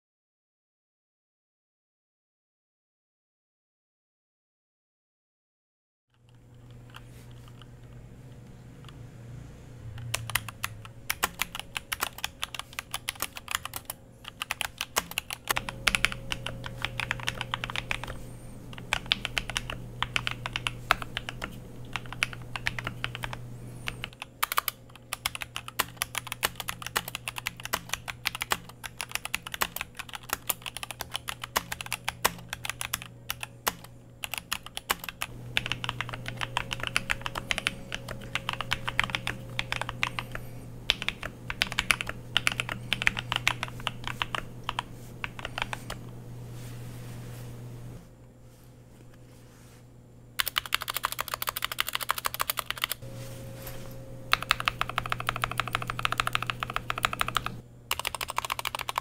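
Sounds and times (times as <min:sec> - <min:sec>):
mechanical keyboard typing: 0:09.9 - 0:46.0, 0:50.4 - 0:53.0, 0:54.3 - 0:59.0.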